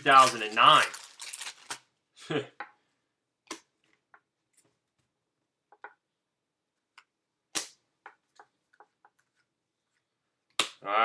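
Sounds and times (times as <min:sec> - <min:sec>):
cards flicking and snapping: 0:07.5 - 0:07.8.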